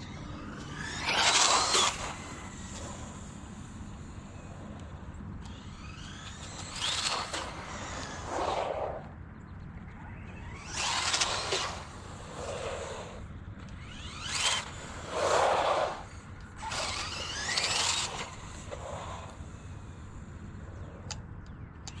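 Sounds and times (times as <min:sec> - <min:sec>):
electric motor whining: 0:00.0 - 0:09.1, 0:10.1 - 0:21.2
tyre noise on asphalt: 0:05.5 - 0:09.1, 0:10.1 - 0:21.0.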